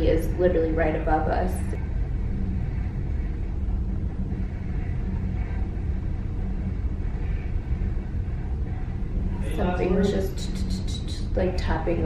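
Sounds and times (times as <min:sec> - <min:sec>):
faint muffled sounds: 0:00.0 - 0:12.0
low rumble: 0:00.0 - 0:12.0.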